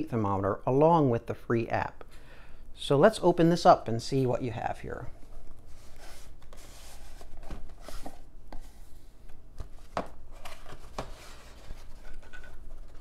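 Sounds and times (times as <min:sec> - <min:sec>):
cardboard box sliding: 0:05.7 - 0:08.9.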